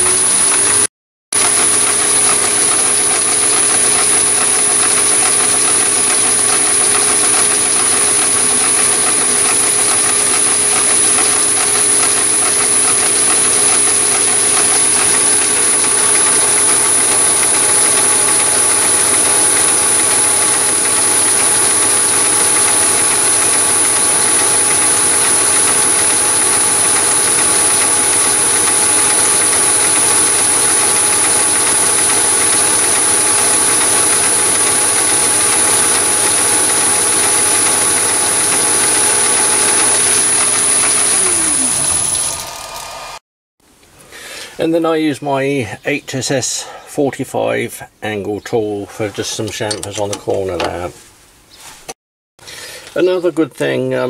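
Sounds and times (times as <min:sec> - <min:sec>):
lathe cutting with high whine: 0:00.0 - 0:43.2
motor and belt hum: 0:00.0 - 0:43.2.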